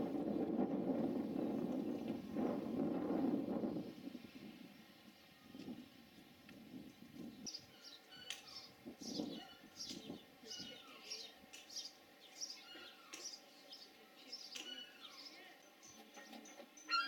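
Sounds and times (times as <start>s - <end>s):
bird chirping: 7.4s - 17.0s.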